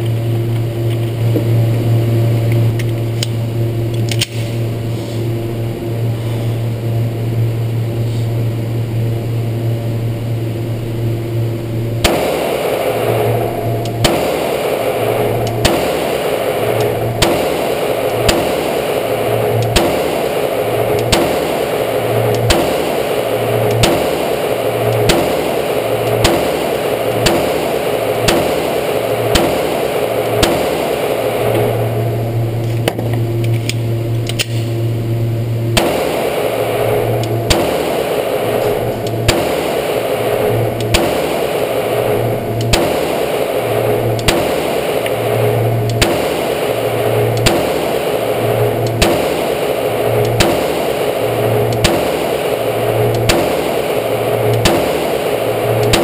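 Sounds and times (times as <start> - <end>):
background hum: 0.0 - 56.0
pistol shots echoing: 12.0 - 31.4, 35.7 - 42.0, 42.6 - 43.6, 44.2 - 45.3, 45.9 - 46.7, 47.4 - 56.0.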